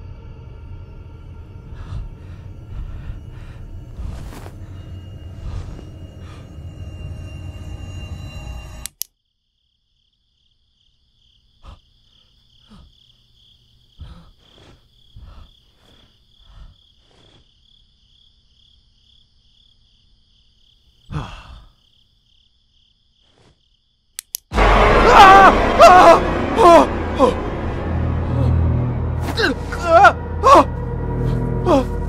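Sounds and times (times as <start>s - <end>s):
scary music: 0.0s - 9.0s, 24.5s - 32.0s
crickets chirping: 0.0s - 24.5s.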